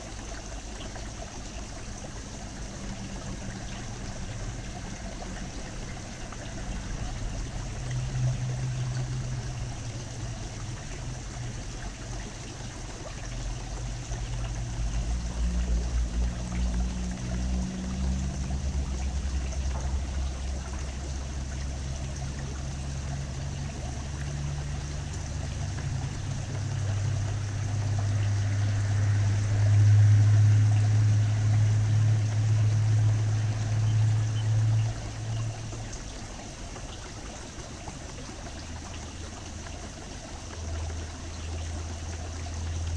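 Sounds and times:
trickling water: 0.0s - 42.9s.

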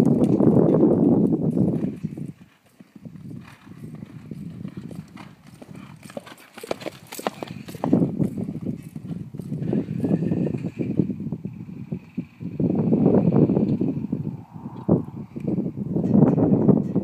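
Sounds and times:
horse hoofbeats on dirt: 0.0s - 11.1s.

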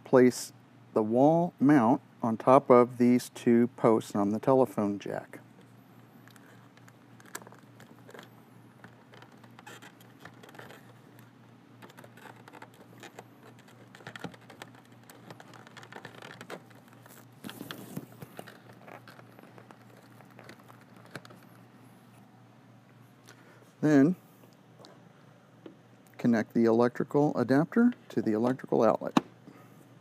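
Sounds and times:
hard plastic clicks and scrapes: 6.3s - 21.6s.

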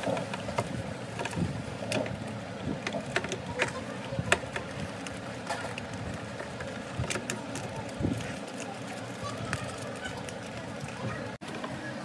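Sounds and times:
handling clicks and rustles: 0.0s - 11.8s
indistinct voices: 2.6s - 12.0s.

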